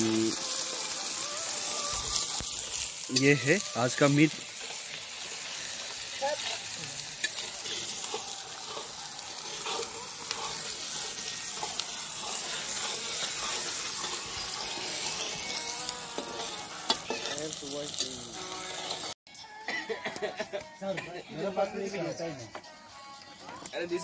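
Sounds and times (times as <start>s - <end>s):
meat sizzling in hot oil: 0.0s - 19.2s
metal spatula scraping: 0.0s - 19.2s.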